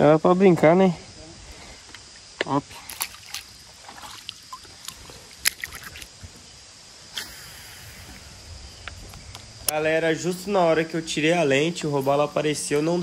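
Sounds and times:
light background noise: 0:00.0 - 0:13.0.

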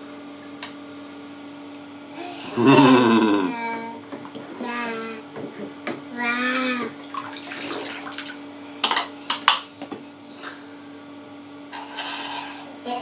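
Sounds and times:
baby vocal sound: 0:02.2 - 0:03.9
water splashing in baby bath: 0:06.9 - 0:08.5.

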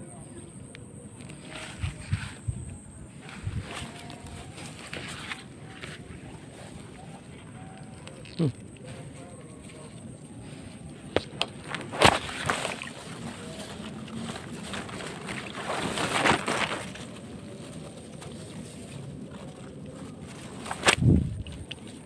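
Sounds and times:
grass rustling: 0:01.0 - 0:22.0
shallow water sloshing: 0:11.7 - 0:22.0.

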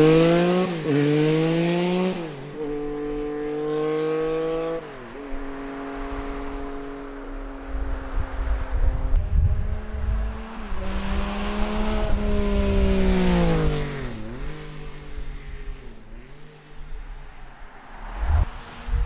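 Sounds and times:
motorcycle accelerating past: 0:00.0 - 0:04.8, 0:09.6 - 0:16.9.

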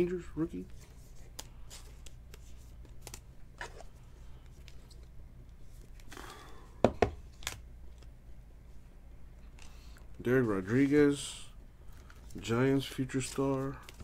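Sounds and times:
trading cards shuffled: 0:00.6 - 0:06.2, 0:11.9 - 0:14.0.

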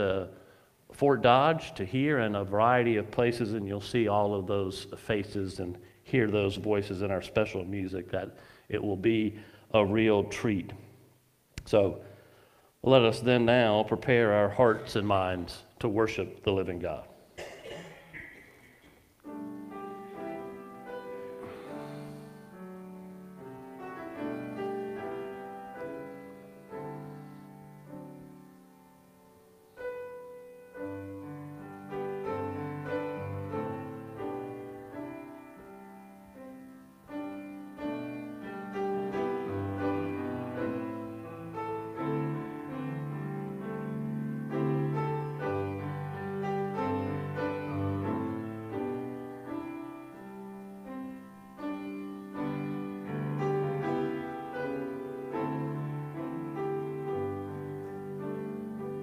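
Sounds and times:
slow piano chords: 0:01.0 - 0:10.9, 0:12.9 - 0:59.0.

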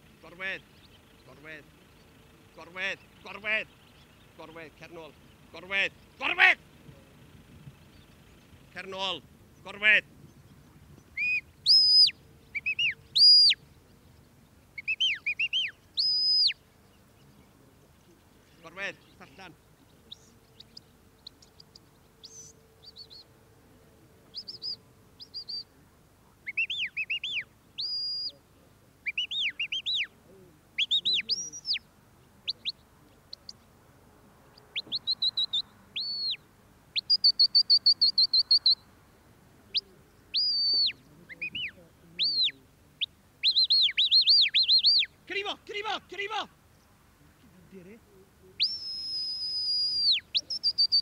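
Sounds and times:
high sharp whistled commands: 0:11.2 - 0:13.6, 0:26.6 - 0:28.4, 0:40.4 - 0:42.5, 0:48.6 - 0:51.0.

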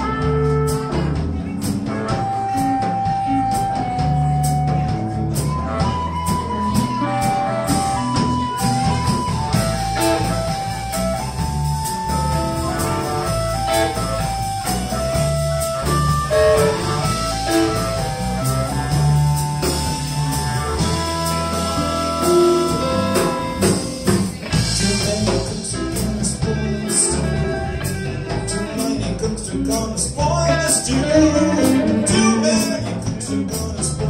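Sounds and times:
drums and cymbals: 0:00.0 - 0:34.0
electric blues band playing: 0:00.0 - 0:34.0
blues harmonica wailing: 0:01.9 - 0:24.9, 0:30.3 - 0:32.9.

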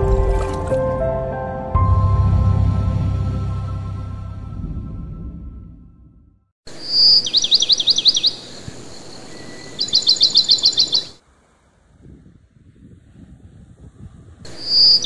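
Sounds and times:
intro music: 0:00.0 - 0:06.3.

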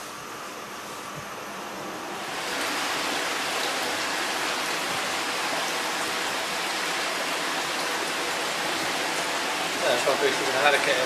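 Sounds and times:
water splashing into pond: 0:02.2 - 0:09.8.

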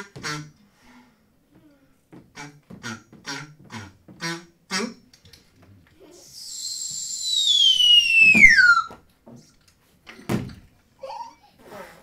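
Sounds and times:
high whistle sliding down: 0:06.4 - 0:09.0.

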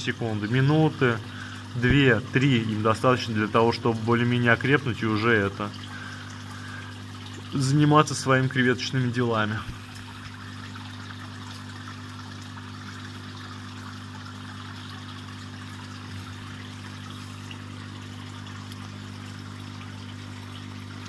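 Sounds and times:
low machine hum: 0:00.0 - 0:21.0
water trickling: 0:00.0 - 0:21.0.

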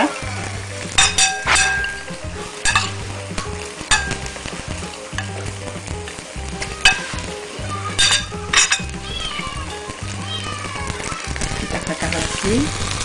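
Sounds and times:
background music: 0:00.0 - 0:13.0
steady hiss: 0:00.0 - 0:13.0
metal spoon clinking on plate: 0:01.0 - 0:04.4, 0:08.0 - 0:09.0.

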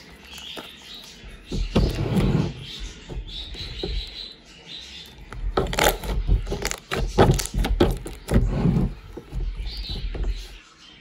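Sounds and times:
slime squelching and popping: 0:05.3 - 0:08.4.

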